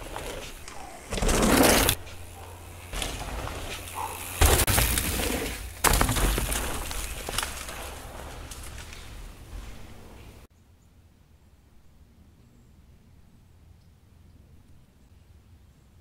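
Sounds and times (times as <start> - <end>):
bike landing a jump: 0.0 - 10.5
bike tyres skidding on dirt: 0.0 - 10.5.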